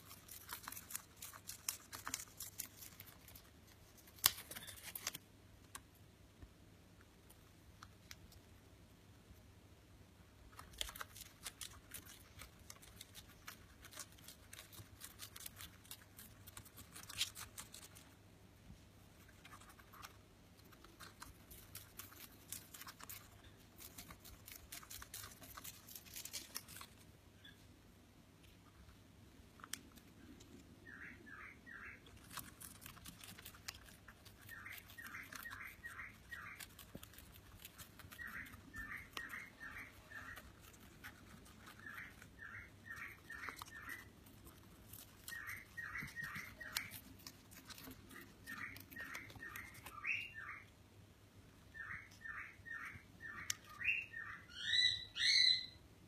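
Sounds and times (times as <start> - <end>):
bird tearing paper: 4.1 - 5.2
bird chirping: 19.2 - 27.8, 29.6 - 50.8, 51.5 - 55.9.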